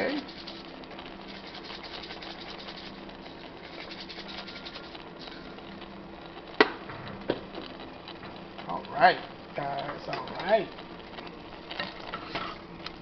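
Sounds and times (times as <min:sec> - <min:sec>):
spice shaker rattling: 0:00.0 - 0:06.5.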